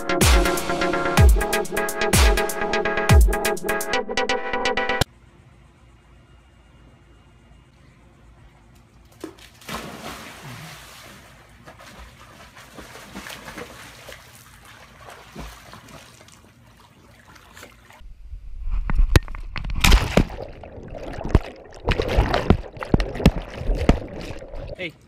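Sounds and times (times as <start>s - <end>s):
dog splashing into pool: 9.1s - 18.0s
water sloshing: 9.1s - 18.0s, 19.6s - 25.0s
sharp splashing and churning water: 9.2s - 18.0s, 19.8s - 24.8s.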